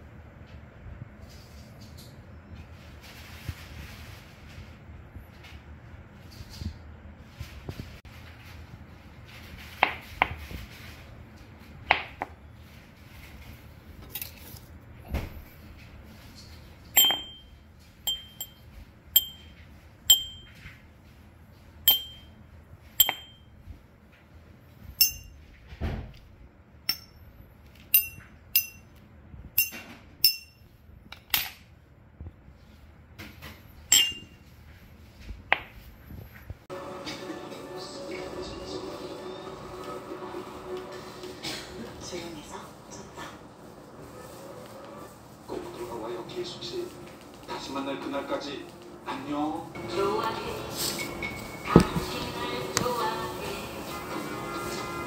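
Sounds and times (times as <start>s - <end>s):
ceramic cup and glass bottles clinking: 17.0s - 17.5s, 18.1s - 20.6s, 33.9s - 34.4s.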